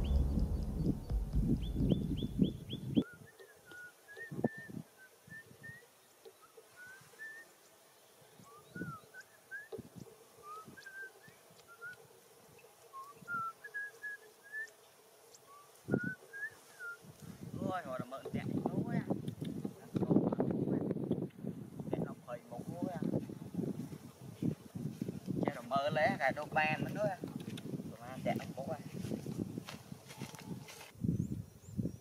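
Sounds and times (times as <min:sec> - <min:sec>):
low rustling rumble: 0:00.0 - 0:03.0
high chirps: 0:00.0 - 0:03.6
short bird chirps: 0:00.0 - 0:04.8
footsteps in grass: 0:23.0 - 0:25.8, 0:26.8 - 0:31.0.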